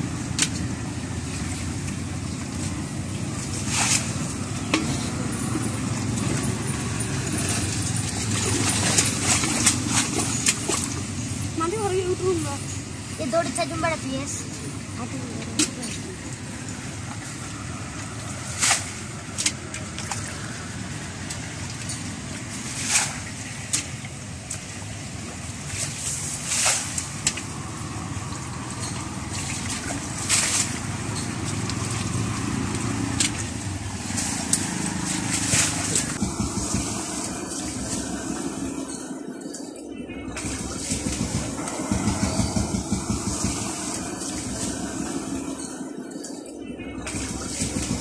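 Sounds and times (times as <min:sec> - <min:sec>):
splashing in muddy water: 0:00.3 - 0:11.7, 0:15.4 - 0:38.9, 0:47.0 - 0:48.0
low rumble: 0:27.4 - 0:39.2, 0:39.9 - 0:46.0.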